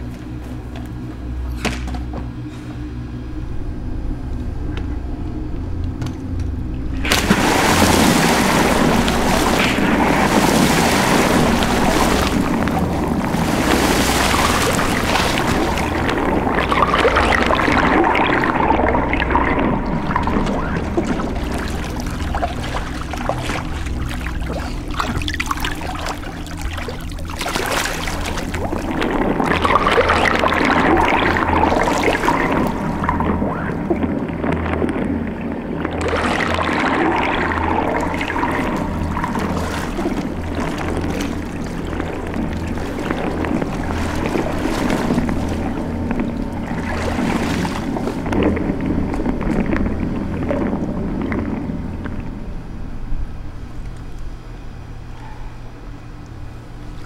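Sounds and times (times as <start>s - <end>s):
low steady hum: 0.0s - 57.0s
water splashing and sloshing: 0.0s - 57.0s.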